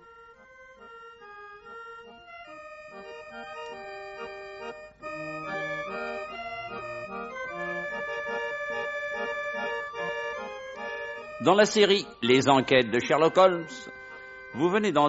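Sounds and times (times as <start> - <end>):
held chords music: 0.0 - 15.0.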